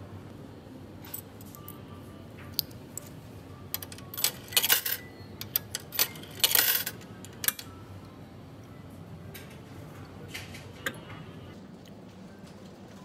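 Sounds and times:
metal tokens clinking into coin slot: 3.7 - 7.7.

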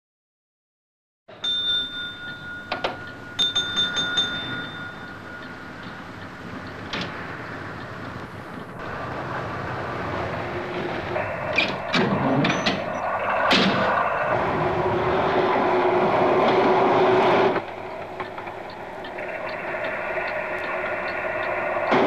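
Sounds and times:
signal bell ringing: 1.3 - 6.7
rumble: 2.3 - 22.0.

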